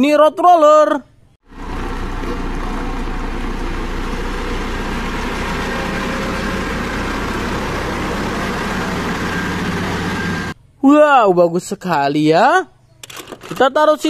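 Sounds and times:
diesel engine humming: 1.4s - 10.7s.

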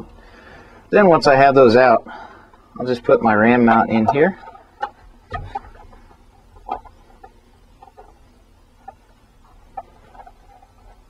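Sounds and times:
light clicks and handling noises: 3.6s - 11.0s.

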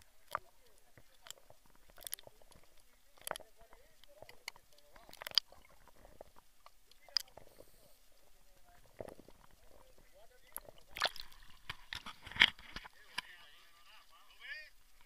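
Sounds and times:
sharp underwater clicks and crackles: 0.0s - 14.1s.

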